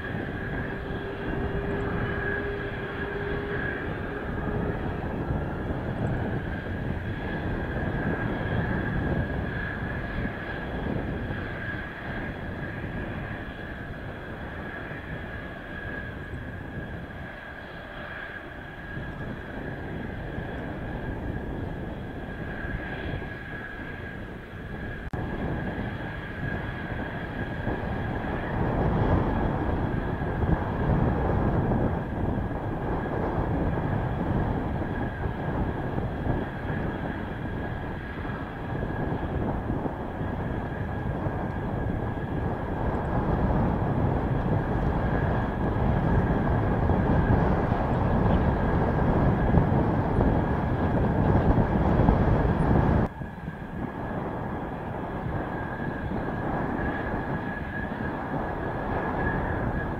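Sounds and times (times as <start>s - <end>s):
jet engine whine: 0.0s - 59.9s
wind noise on microphone: 0.0s - 59.9s.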